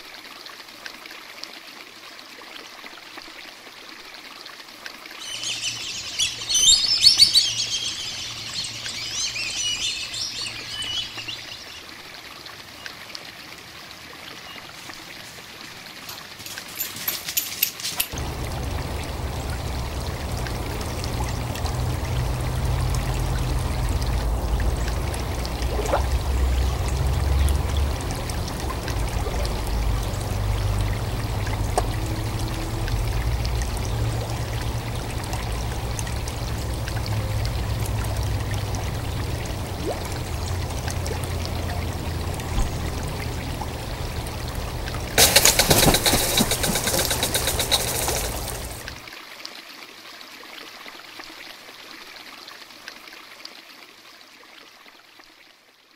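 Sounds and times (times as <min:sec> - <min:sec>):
waterfall splashing into pond: 0:00.0 - 0:55.9
steady low rumble: 0:18.2 - 0:45.2.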